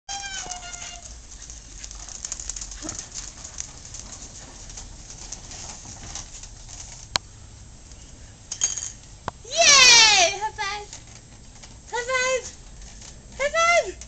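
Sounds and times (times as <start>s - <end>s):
high-pitched call: 0.1s - 1.0s
plastic wheels rolling over asphalt: 0.1s - 7.2s.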